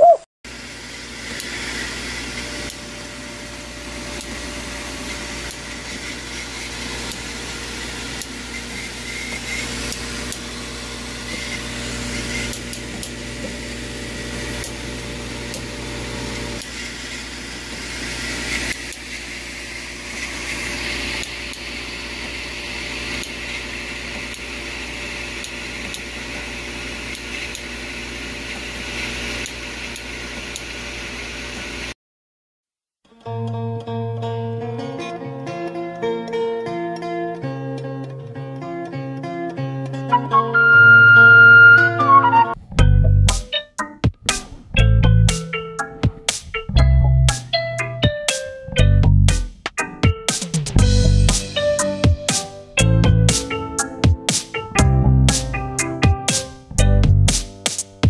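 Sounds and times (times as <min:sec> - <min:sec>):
mechanical hum and hiss: 0:00.5 - 0:31.9
plucked-string music: 0:33.1 - 0:57.3.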